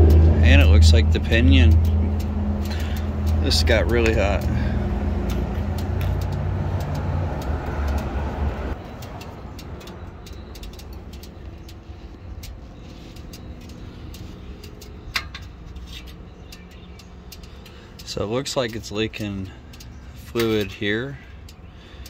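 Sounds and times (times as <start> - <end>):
low vehicle rumble: 0.0 - 22.0
light clicks: 5.2 - 22.0.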